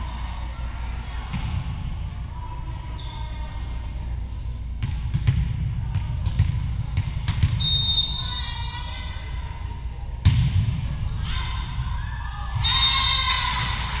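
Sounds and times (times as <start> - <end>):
referee's whistle: 7.6 - 8.6, 12.6 - 13.3
voices shouting in gym: 7.6 - 10.2, 11.0 - 14.0.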